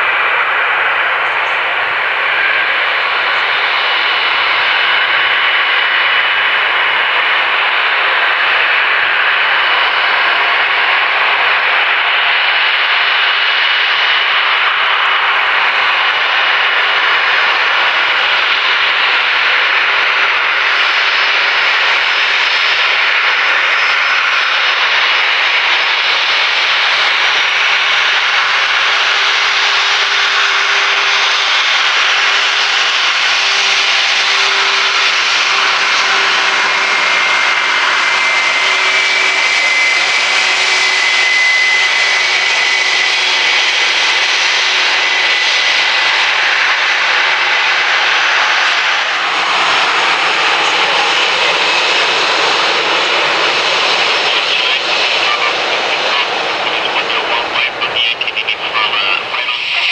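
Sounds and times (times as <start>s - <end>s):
jet engines at taxi power: 0.0s - 59.9s
thin high engine whine: 0.0s - 59.9s.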